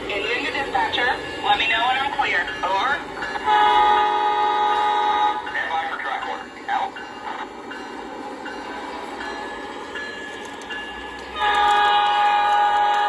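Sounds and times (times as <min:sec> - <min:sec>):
model locomotive engine running: 0:00.0 - 0:13.0
locomotive horn blast: 0:03.4 - 0:05.5, 0:11.3 - 0:13.0.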